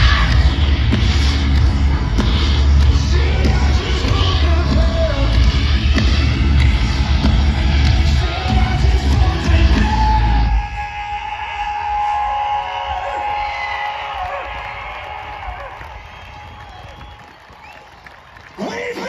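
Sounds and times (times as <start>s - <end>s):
deep bass: 0.0s - 10.6s
pounding drums: 0.0s - 11.1s
heavy distorted guitars: 0.0s - 13.6s.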